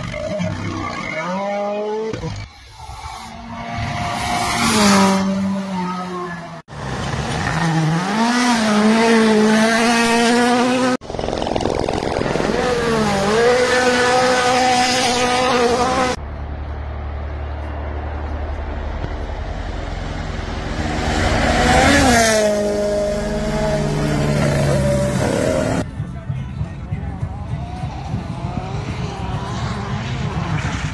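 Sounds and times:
rally car engines at full throttle: 0:00.0 - 0:30.9
car passing by: 0:14.9 - 0:25.8.

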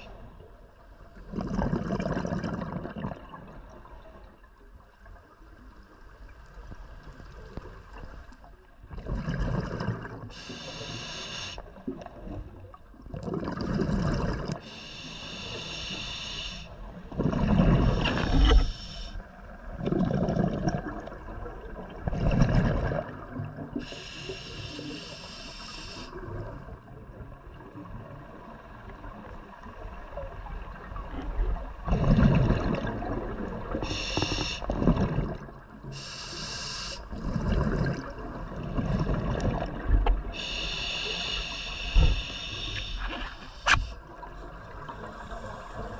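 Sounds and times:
exhaled bubbles rumbling: 0:01.2 - 0:04.4, 0:08.7 - 0:10.4, 0:11.8 - 0:14.6, 0:16.9 - 0:23.8, 0:26.2 - 0:35.9, 0:37.1 - 0:40.6
regulator inhalation hiss: 0:10.3 - 0:11.6, 0:14.6 - 0:16.8, 0:18.2 - 0:19.2, 0:23.8 - 0:26.2, 0:33.8 - 0:34.7, 0:35.9 - 0:37.1, 0:40.4 - 0:44.0.

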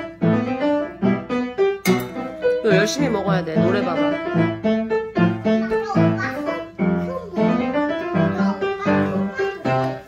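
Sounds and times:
light piano tune: 0:00.0 - 0:10.0.

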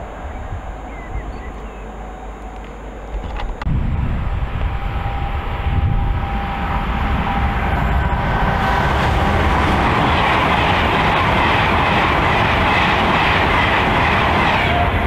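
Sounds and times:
train passing at speed: 0:00.0 - 0:15.0.

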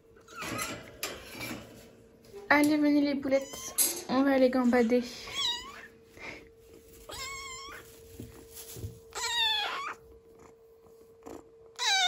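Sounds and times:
faint steady hum: 0:00.0 - 0:12.0
kitten mewing: 0:09.2 - 0:10.0, 0:11.3 - 0:12.0.

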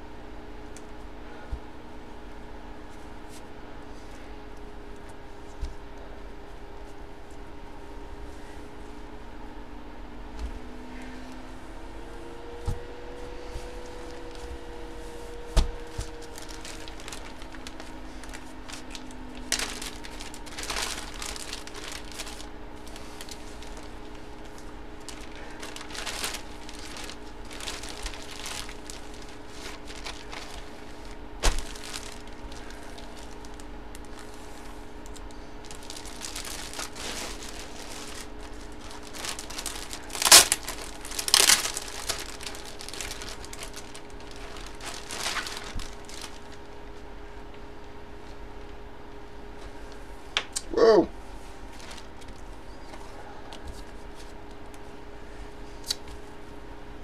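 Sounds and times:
plastic bag crinkling: 0:13.2 - 0:47.0, 0:51.6 - 0:52.8.

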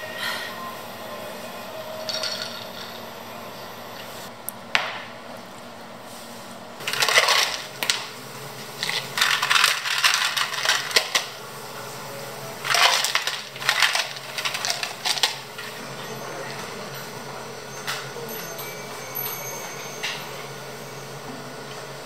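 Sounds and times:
ice cubes clattering into plastic cups: 0:06.8 - 0:08.2, 0:08.8 - 0:11.4, 0:12.6 - 0:15.8.

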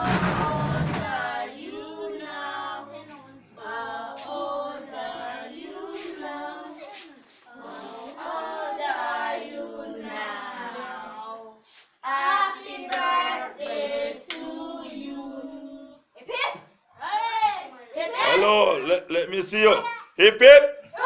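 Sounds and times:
children singing: 0:00.0 - 0:16.0.

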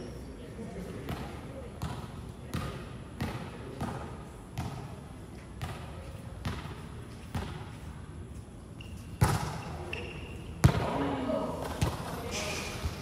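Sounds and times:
volleyball bouncing on hard floor: 0:01.1 - 0:05.0, 0:05.6 - 0:07.7, 0:09.2 - 0:12.1.

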